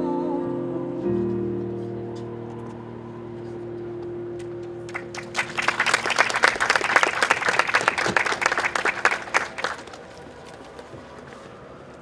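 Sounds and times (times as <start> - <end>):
audience applauding: 4.9 - 10.9.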